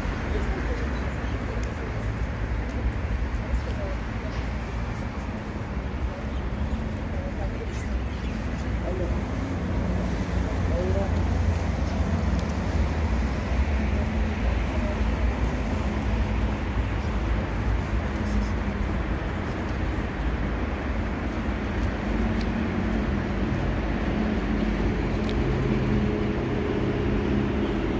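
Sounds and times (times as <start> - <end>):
city road traffic: 0.0 - 27.9.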